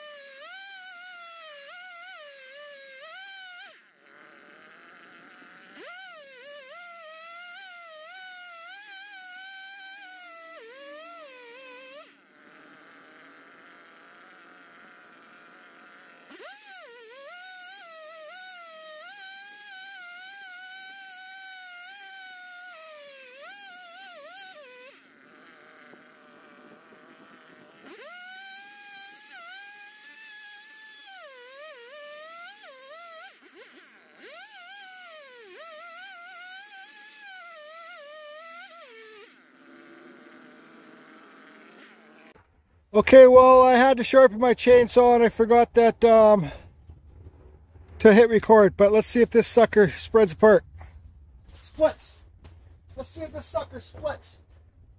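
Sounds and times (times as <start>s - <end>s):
chainsaw cutting wood: 0.0s - 54.9s.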